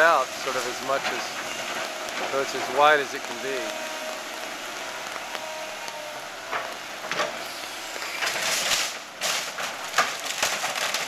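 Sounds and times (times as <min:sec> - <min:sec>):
timber splintering and debris crashing: 0:08.2 - 0:11.0.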